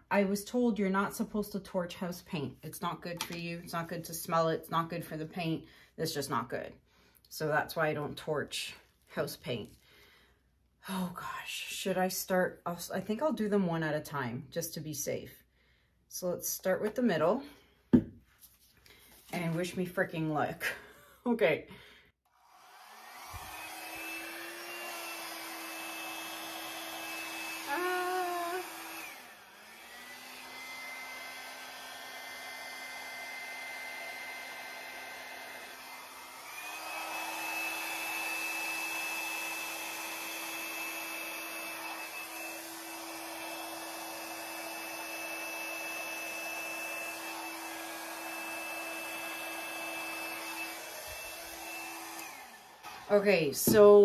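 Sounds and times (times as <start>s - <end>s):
hair dryer running: 3.0s - 5.4s, 22.3s - 54.0s.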